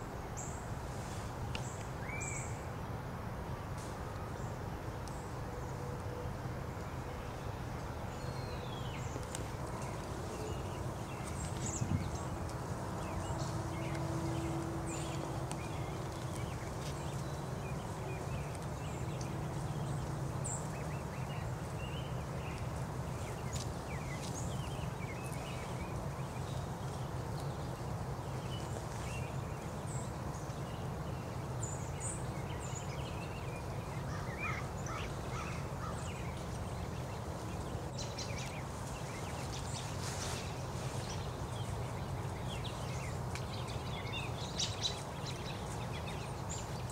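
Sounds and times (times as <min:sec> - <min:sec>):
steady low rumble: 0:04.7 - 0:30.5
small birds chirping: 0:06.8 - 0:46.9.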